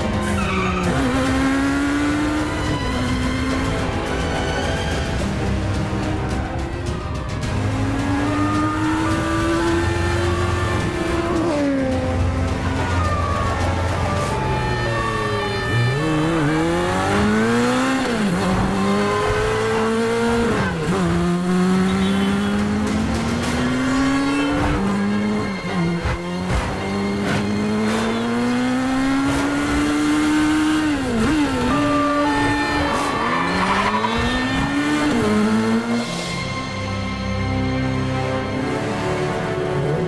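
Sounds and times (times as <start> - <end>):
motorcycle engine revving: 0.1 - 4.5, 7.4 - 12.8, 15.0 - 36.2
tyres squealing: 31.0 - 35.3.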